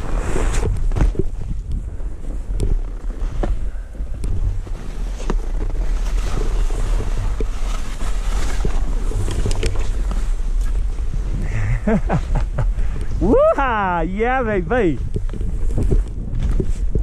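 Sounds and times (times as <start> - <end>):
skis hissing through powder snow: 0.0 - 0.8, 3.1 - 12.7
wind rumbling on microphone: 0.0 - 17.0.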